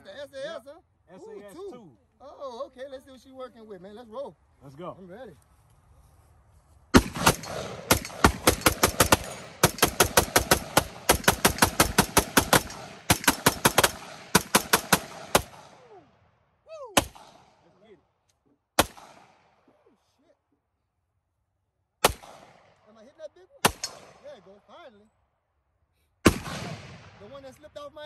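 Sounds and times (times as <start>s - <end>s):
single gunshots: 6.9s - 15.9s, 17.0s - 17.7s, 18.8s - 19.6s, 22.0s - 22.8s, 23.6s - 24.4s, 26.2s - 27.6s
rapid gunshots: 7.0s - 15.9s, 17.0s - 17.6s, 18.8s - 19.5s, 22.0s - 22.7s, 23.6s - 24.4s, 26.2s - 27.5s.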